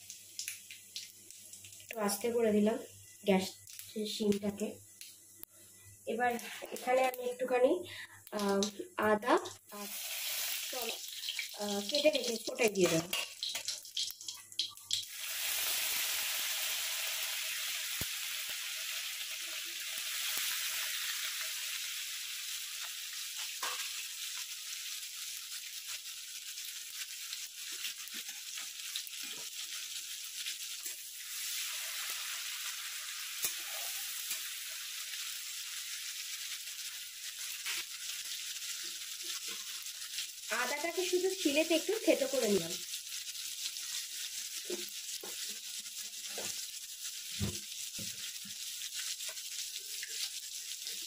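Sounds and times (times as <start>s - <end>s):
hot oil sizzling: 0.0s - 51.0s
spatula clicks and scrapes: 12.8s - 15.1s.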